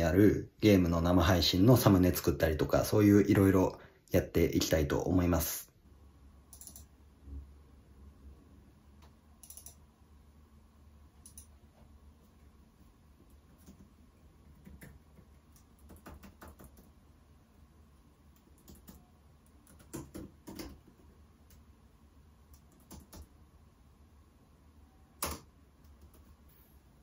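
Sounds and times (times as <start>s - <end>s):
typing on a keyboard: 6.5s - 6.9s, 9.4s - 9.8s, 13.6s - 17.0s, 18.3s - 21.6s, 22.5s - 23.3s, 25.2s - 26.4s.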